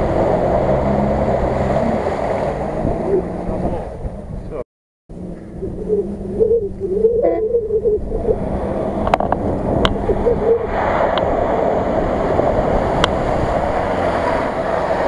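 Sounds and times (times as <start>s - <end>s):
tyres splashing water and mud: 0.0s - 4.2s, 8.4s - 15.0s
off-road engine revving: 0.0s - 15.0s.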